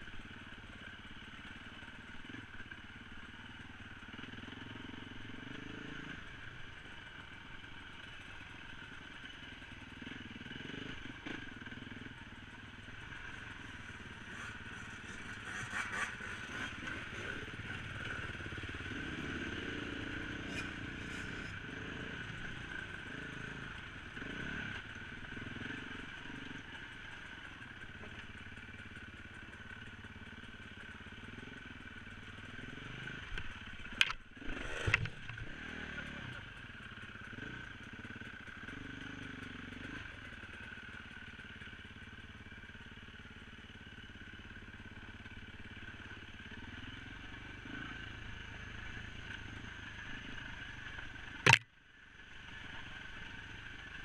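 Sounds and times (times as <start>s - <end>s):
dirt bike engine revving: 10.0s - 12.1s, 13.0s - 26.6s, 34.0s - 36.4s.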